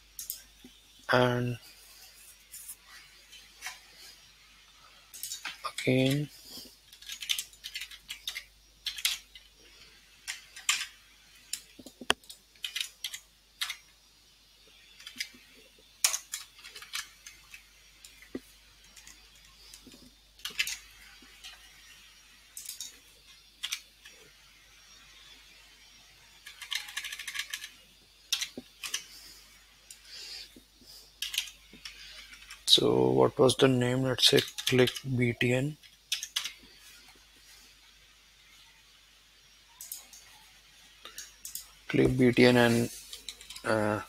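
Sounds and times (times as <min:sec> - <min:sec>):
typing on computer keyboard: 0:06.9 - 0:09.3, 0:11.5 - 0:13.8, 0:23.6 - 0:23.8, 0:26.4 - 0:29.0, 0:31.2 - 0:31.6, 0:36.1 - 0:36.6.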